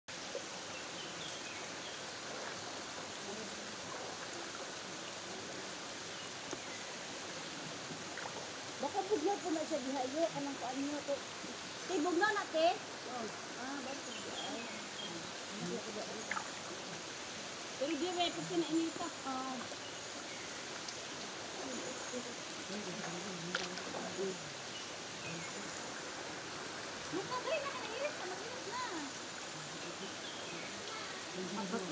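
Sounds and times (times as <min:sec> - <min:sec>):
water flowing over rocks: 0:00.1 - 0:31.9
faint voice murmuring: 0:27.0 - 0:31.9.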